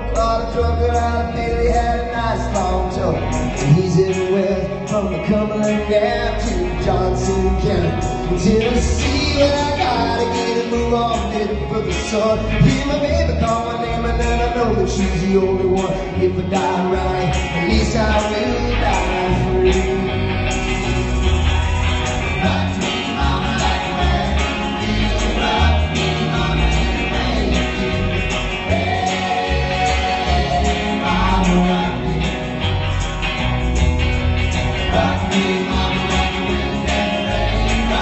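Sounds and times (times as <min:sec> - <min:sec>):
male lead vocal singing: 0:00.0 - 0:32.8, 0:34.7 - 0:38.0
electric guitar: 0:00.0 - 0:38.0
strummed acoustic guitar: 0:00.0 - 0:38.0.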